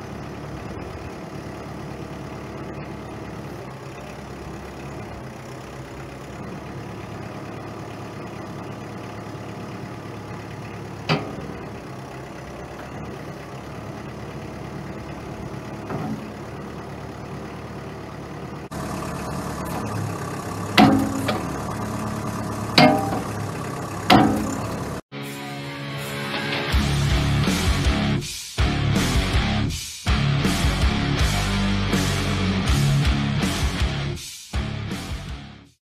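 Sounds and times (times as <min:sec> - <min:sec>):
diesel engine running: 0:00.0 - 0:25.1, 0:26.0 - 0:35.7
sharp metallic knock: 0:20.8 - 0:21.5, 0:22.8 - 0:23.3, 0:24.1 - 0:24.6.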